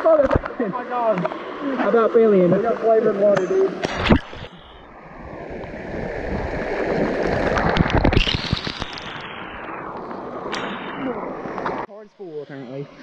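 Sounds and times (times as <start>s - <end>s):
waterfall splashing into pool: 7.0s - 9.6s.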